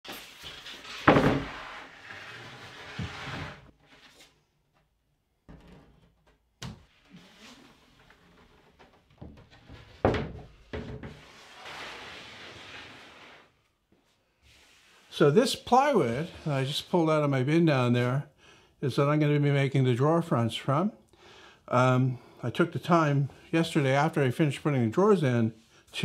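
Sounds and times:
plywood scraping against boards: 0.4s - 4.3s
heavy thump on table: 1.1s - 1.5s.

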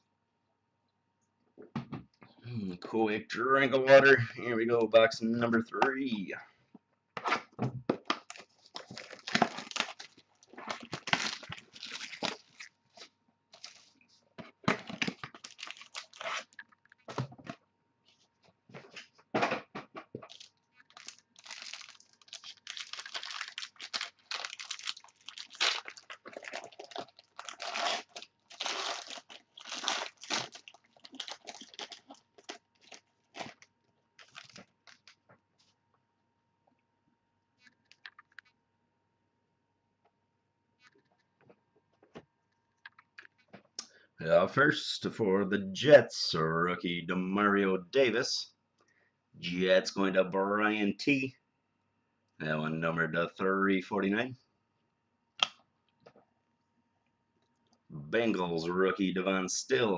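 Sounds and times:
packaging torn and crinkled: 8.2s - 14.0s, 14.8s - 17.0s, 20.3s - 35.2s.

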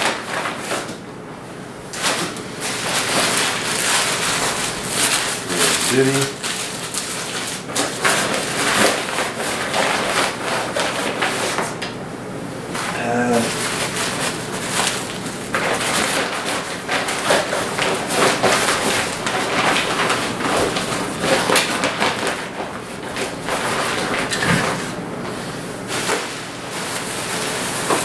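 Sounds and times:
packaging crinkling and rustling: 1.9s - 11.9s, 13.6s - 25.0s.

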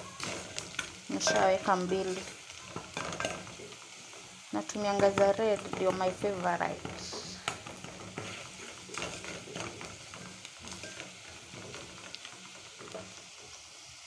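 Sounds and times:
onions sizzling in oil: 0.0s - 14.0s
wooden spoon scraping pot: 4.7s - 13.2s.

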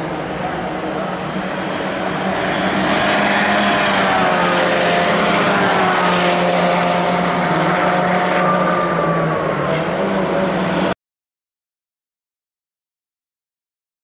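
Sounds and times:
race car engines: 0.0s - 11.0s.

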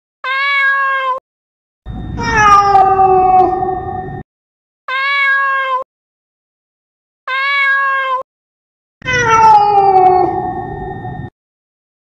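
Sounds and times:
cat meowing: 0.2s - 1.2s, 2.2s - 3.8s, 4.9s - 5.9s, 7.3s - 8.2s, 9.0s - 10.6s.

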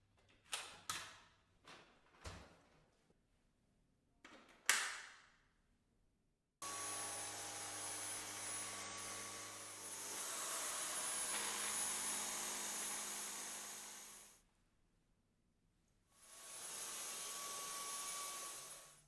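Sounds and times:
cordless vacuum motor running: 6.6s - 14.3s.

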